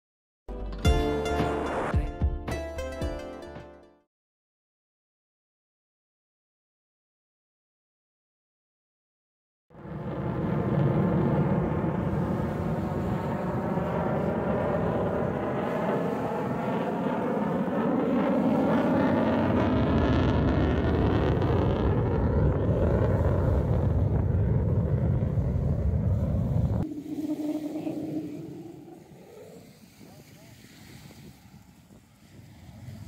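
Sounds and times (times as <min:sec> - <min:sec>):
jet aircraft roaring past: 0:09.8 - 0:29.8.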